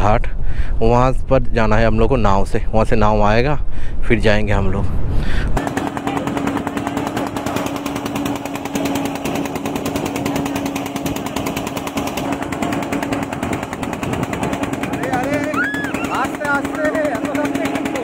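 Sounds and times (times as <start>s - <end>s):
motorboat engine chugging: 5.6s - 18.0s.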